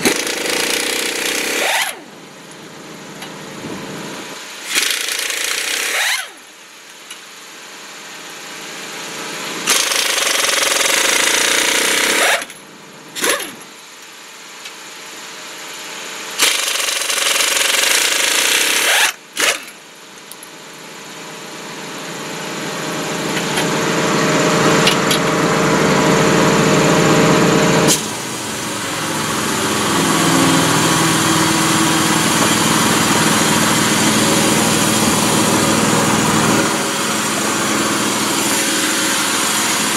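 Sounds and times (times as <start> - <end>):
pneumatic impact wrench hammering: 0.0 - 2.1, 4.6 - 6.5, 9.6 - 13.8, 16.4 - 20.5, 23.3 - 23.8, 24.8 - 25.3, 27.9 - 39.9
small engine running: 0.0 - 2.1, 4.6 - 6.4, 9.6 - 12.6, 16.3 - 19.8, 21.7 - 39.9.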